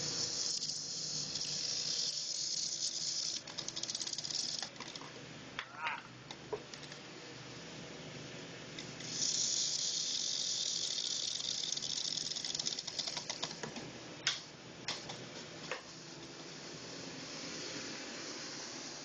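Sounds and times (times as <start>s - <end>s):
high hiss of nail on belt: 0.0s - 4.6s, 9.0s - 13.2s, 16.5s - 19.0s.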